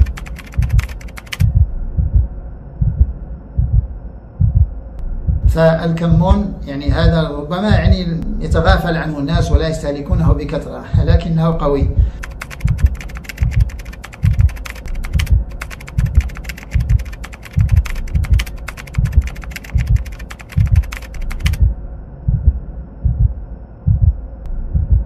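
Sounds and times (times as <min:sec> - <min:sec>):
rapid keyboard typing: 0:00.0 - 0:01.6, 0:12.1 - 0:21.7.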